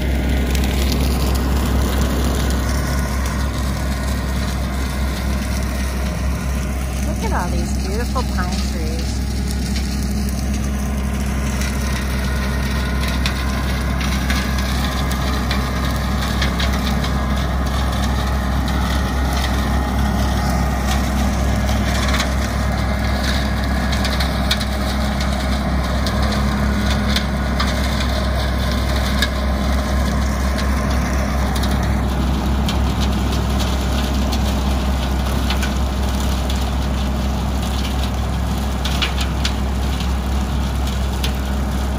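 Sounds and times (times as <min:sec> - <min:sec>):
rotary cutter mowing brush: 0:00.0 - 0:41.9
tractor engine running under load: 0:00.0 - 0:41.9
woody stems snapping and crackling: 0:08.5 - 0:41.9.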